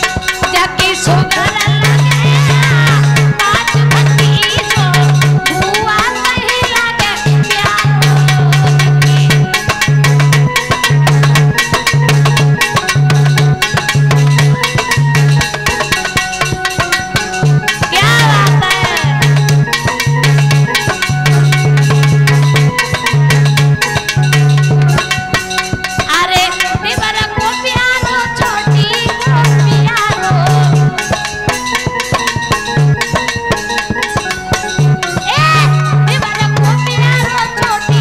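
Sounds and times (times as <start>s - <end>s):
electronic keyboard: 0.0s - 38.0s
fast drum beat: 0.0s - 38.0s
woman singing: 0.5s - 9.5s, 17.9s - 19.3s, 26.1s - 31.0s, 35.3s - 38.0s.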